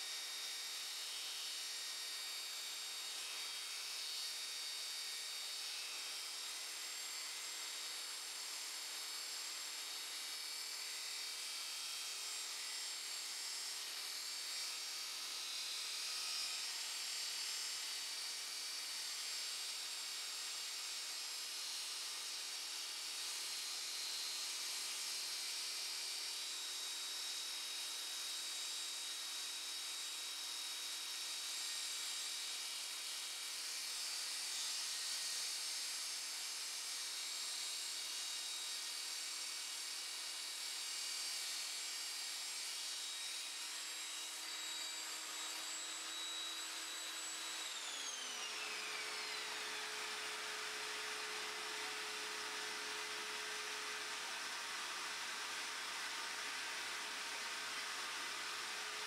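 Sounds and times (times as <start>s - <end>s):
table saw cutting acrylic: 0.2s - 59.0s
saw blade winding down: 40.8s - 59.0s.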